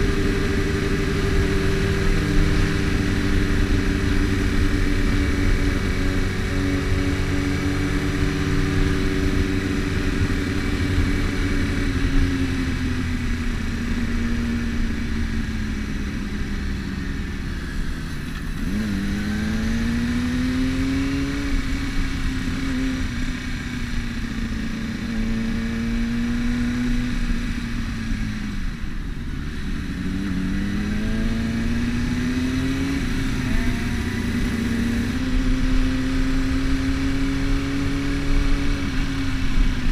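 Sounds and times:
motorcycle engine: 0.0 - 39.9.

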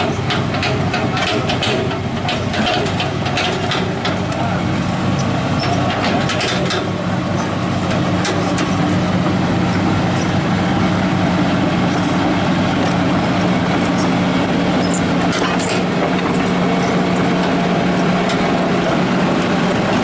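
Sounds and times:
excavator diesel engine running: 0.0 - 20.0.

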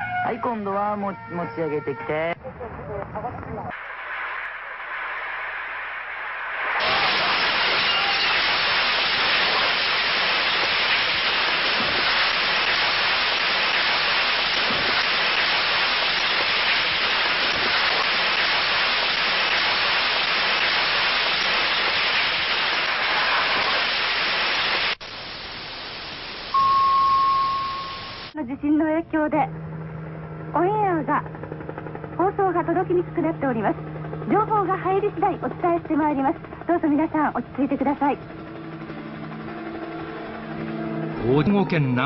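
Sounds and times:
static hiss: 3.7 - 28.4
steady beep tone: 26.5 - 28.3.

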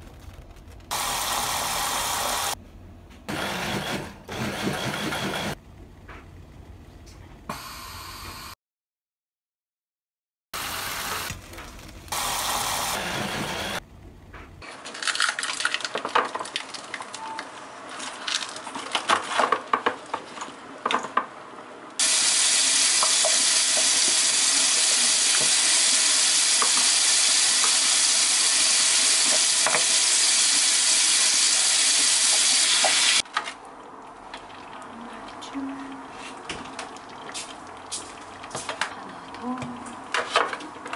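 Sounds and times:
loud steady hiss: 0.9 - 2.6, 10.6 - 11.4, 12.1 - 13.8, 22.0 - 33.2.

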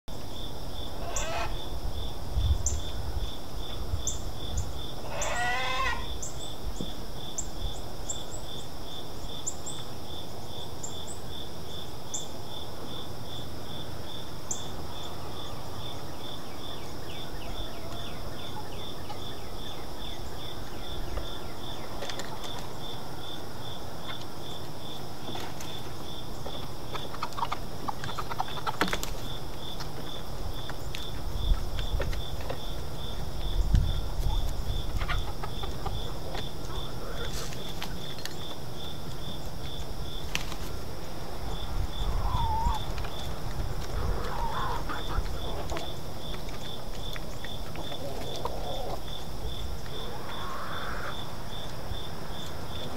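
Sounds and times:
insects chirping: 0.1 - 52.9
warbling bird calls: 0.9 - 1.7, 5.0 - 6.5, 42.0 - 46.1, 47.3 - 51.4
hens flapping and scrabbling: 21.9 - 22.9, 25.2 - 41.0, 42.2 - 51.4.

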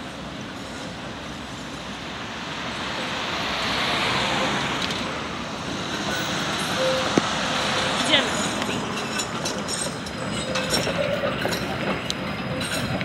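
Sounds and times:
street traffic noise: 0.0 - 13.0
car passing close by: 2.5 - 8.7.

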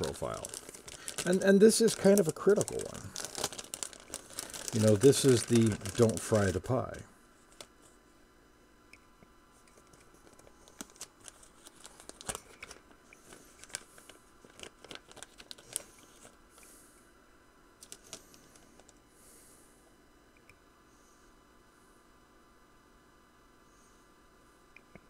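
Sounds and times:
plastic bag crinkling: 0.0 - 7.7, 9.8 - 16.4, 17.8 - 19.0.

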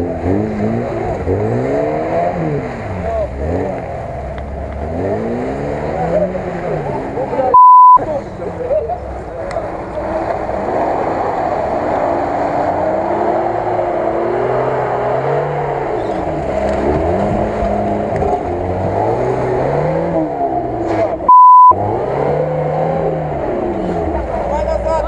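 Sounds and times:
off-road car engine revving: 0.0 - 25.0
loud bleep tone: 7.6 - 8.0, 21.3 - 21.8.

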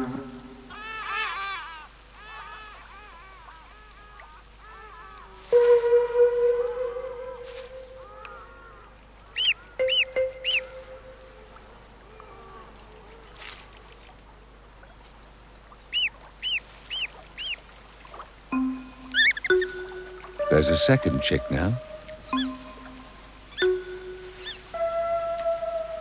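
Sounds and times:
crane chick peeping: 9.4 - 11.6, 18.6 - 25.5
sustained low musical note: 18.6 - 26.0.

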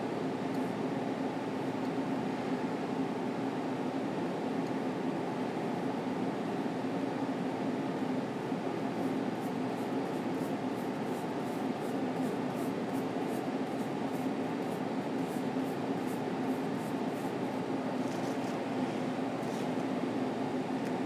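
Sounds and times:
ventilation fan hum: 0.0 - 21.0
brush scrubbing paint: 9.0 - 19.8.

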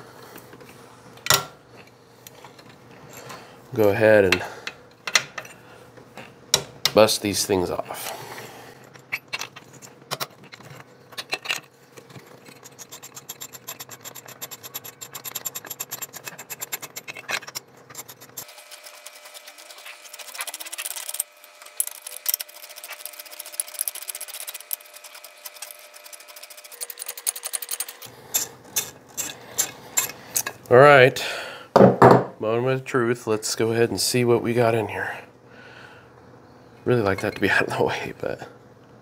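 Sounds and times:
ratchet wrench clicking: 20.5 - 30.1.

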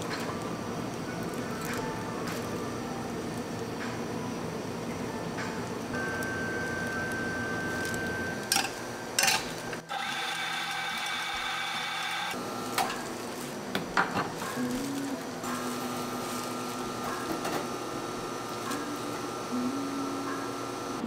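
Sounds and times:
coffee machine motor running: 9.6 - 21.0.

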